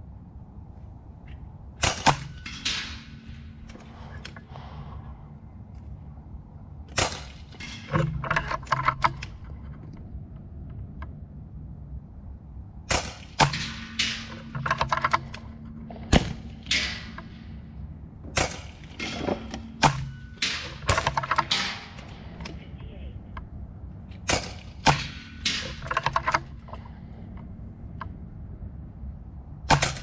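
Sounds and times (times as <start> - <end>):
air rifle shots: 1.8 - 4.9, 6.9 - 7.9, 12.9 - 14.6, 15.2 - 17.7, 18.3 - 22.6, 24.2 - 26.1, 29.7 - 30.0.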